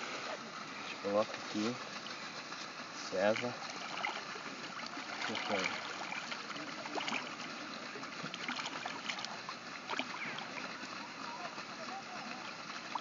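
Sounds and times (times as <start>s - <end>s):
water lapping: 0.0s - 13.0s
fish splashing at surface: 3.3s - 11.2s.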